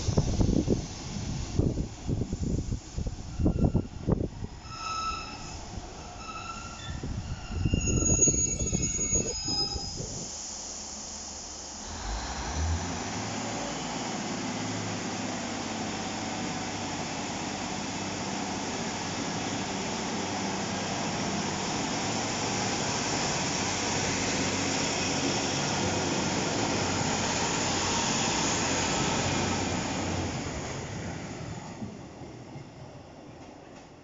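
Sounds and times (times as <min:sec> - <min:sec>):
diesel railcar engines: 0:00.0 - 0:34.0
rail noise: 0:00.0 - 0:34.0.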